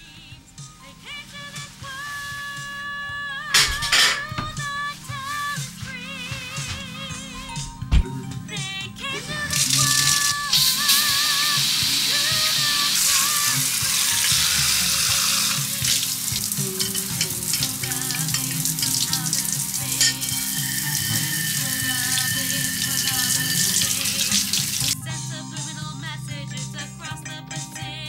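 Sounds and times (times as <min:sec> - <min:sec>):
shower spraying water: 0:01.1 - 0:02.8, 0:09.5 - 0:25.0
faint wavering tune: 0:20.3 - 0:23.9.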